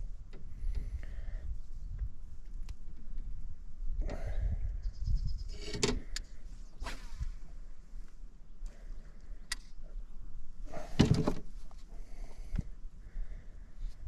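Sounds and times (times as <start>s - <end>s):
wind rumble on microphone: 0.0s - 8.0s.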